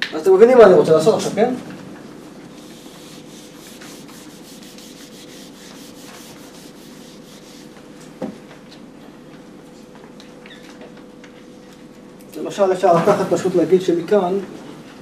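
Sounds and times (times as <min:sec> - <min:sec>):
eraser wiping whiteboard: 0:02.6 - 0:07.8.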